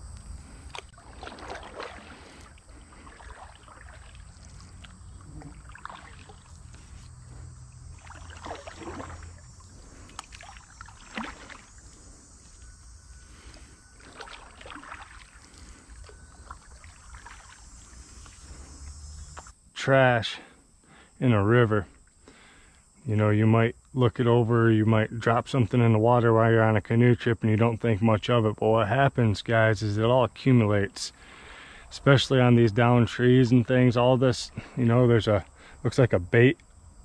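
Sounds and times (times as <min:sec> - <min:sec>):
steady low rumble: 0:00.0 - 0:01.2
paddle strokes swishing in water: 0:00.7 - 0:11.8, 0:14.0 - 0:18.4.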